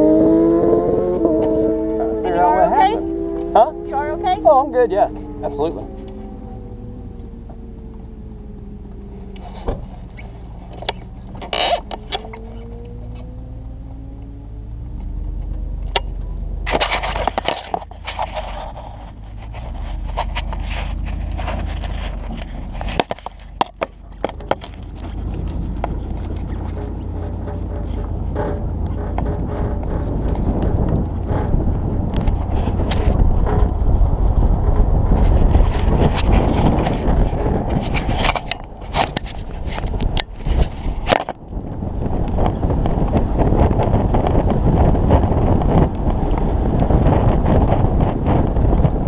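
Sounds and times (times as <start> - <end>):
steady low rumble: 0.0 - 49.0
wind noise on microphone: 0.0 - 49.0
knocks and scrapes on motorcycle: 9.2 - 13.4, 14.9 - 49.0.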